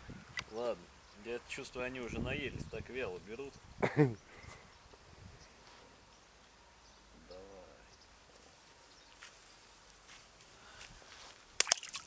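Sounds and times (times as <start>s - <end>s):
footsteps on grass: 8.3s - 12.0s.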